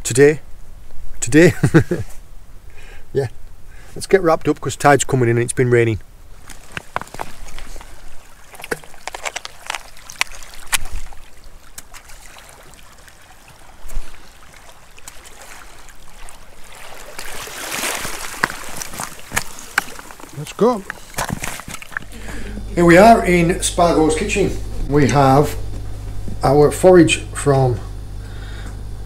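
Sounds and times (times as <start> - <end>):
water sloshing and splashing: 6.3 - 22.6.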